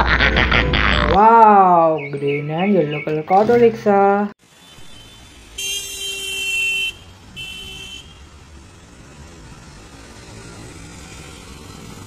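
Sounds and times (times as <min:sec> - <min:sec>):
street traffic noise: 0:00.0 - 0:12.0
vehicle horn honking: 0:04.6 - 0:08.3.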